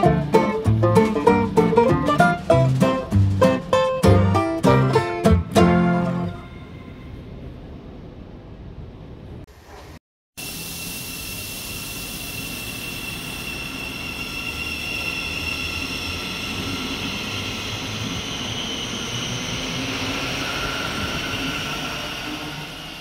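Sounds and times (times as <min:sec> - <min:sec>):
wheels rumbling on rail: 0:00.0 - 0:23.0
electric train motor whine: 0:10.4 - 0:23.0.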